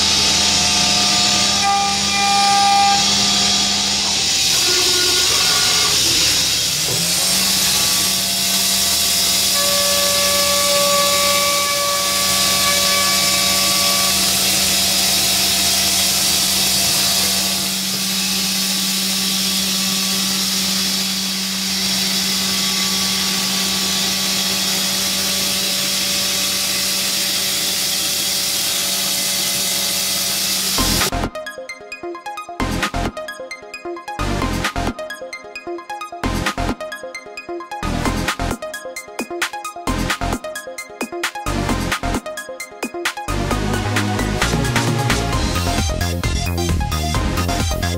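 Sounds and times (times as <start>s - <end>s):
milling spindle whine: 0.0s - 31.1s.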